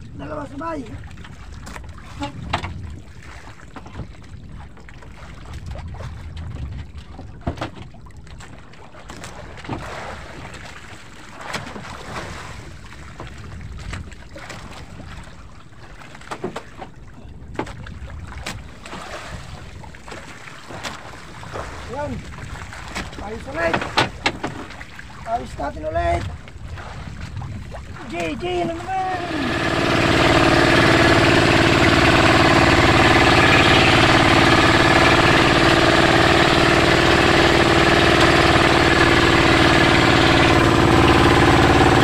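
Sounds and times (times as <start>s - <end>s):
wind on microphone: 0.0s - 8.5s, 12.0s - 15.6s, 21.2s - 42.0s
water sloshing against boat hull: 0.0s - 42.0s
gear knocking in wooden hull: 28.2s - 42.0s.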